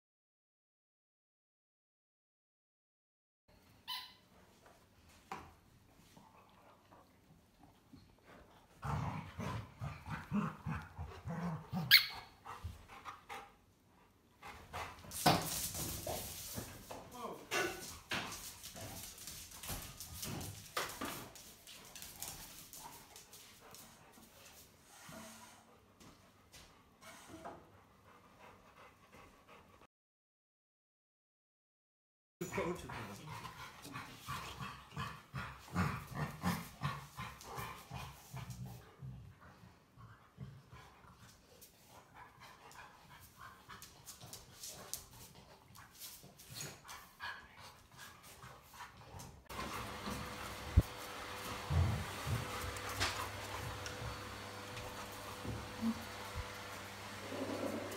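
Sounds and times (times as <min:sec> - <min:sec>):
dogs panting and scuffling: 0:04.3 - 0:29.9, 0:32.4 - 0:57.9
dog claws scuffling on wooden floor: 0:15.1 - 0:17.1, 0:17.7 - 0:24.7, 0:49.5 - 0:57.9.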